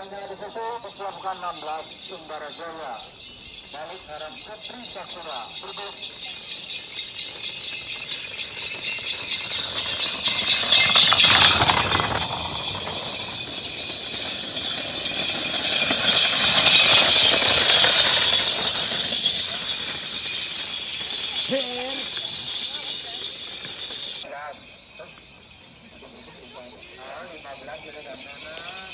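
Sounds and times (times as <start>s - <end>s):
bells jingling: 0.0s - 28.9s
hooves and cart wheels clattering: 0.0s - 28.9s.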